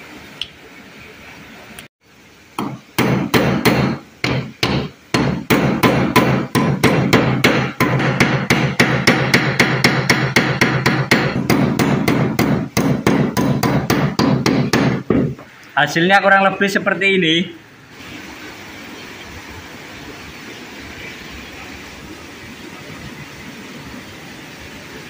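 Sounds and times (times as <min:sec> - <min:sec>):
hammer striking steel tube: 0:02.6 - 0:15.3.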